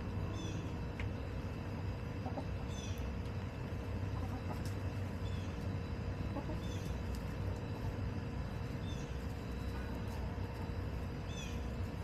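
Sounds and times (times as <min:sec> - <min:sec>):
steady low rumble: 0:00.0 - 0:12.0
hens clucking softly: 0:02.2 - 0:03.3, 0:04.0 - 0:07.6.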